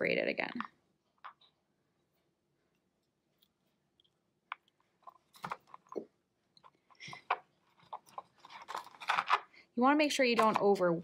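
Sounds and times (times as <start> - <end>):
clay squishing: 0.5 - 9.6.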